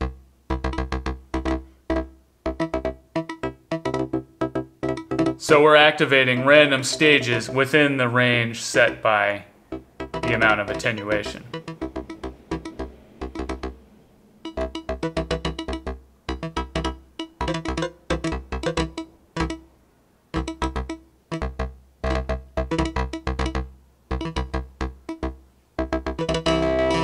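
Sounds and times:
short pitched synth notes: 0.0 - 19.7, 20.4 - 27.0.

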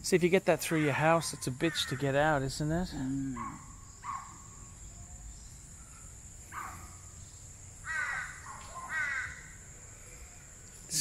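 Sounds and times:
crow cawing: 7.8 - 9.6.

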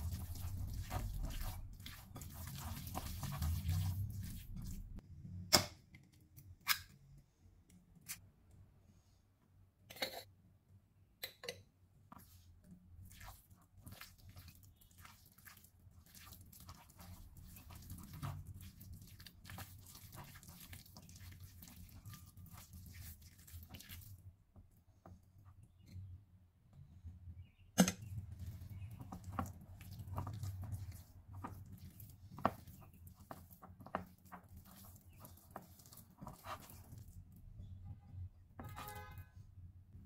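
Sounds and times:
hands squelching wet minced meat: 0.0 - 5.0, 13.0 - 24.3, 28.2 - 37.4.

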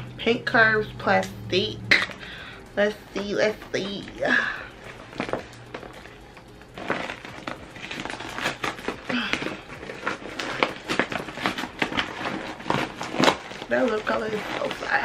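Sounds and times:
plastic packaging crinkling: 3.2 - 15.0.

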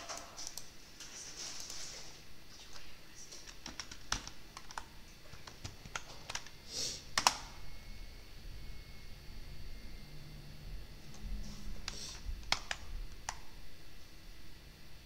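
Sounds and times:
keyboard typing clicks: 3.4 - 6.5, 11.8 - 13.4.

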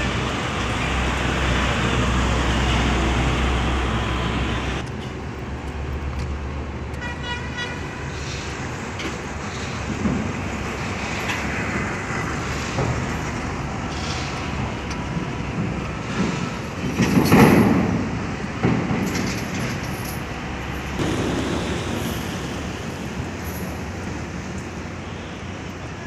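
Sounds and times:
machinery rumble: 0.0 - 6.9, 8.1 - 26.0.

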